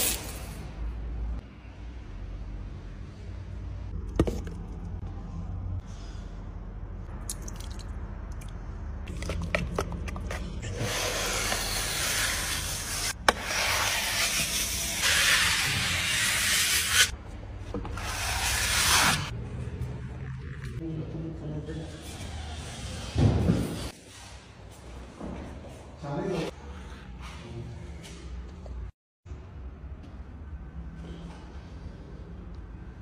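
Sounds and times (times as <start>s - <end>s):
trowel scraping wall: 10.3s - 17.1s.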